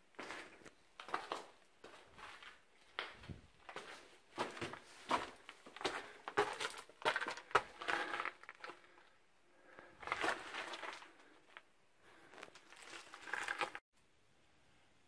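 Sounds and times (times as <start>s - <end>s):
footsteps crunching on rock: 0.2s - 9.0s
rustling: 9.7s - 13.8s.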